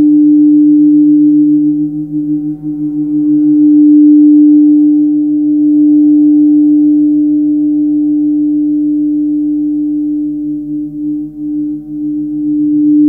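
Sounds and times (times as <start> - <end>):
large gong ringing: 1.6 - 5.7.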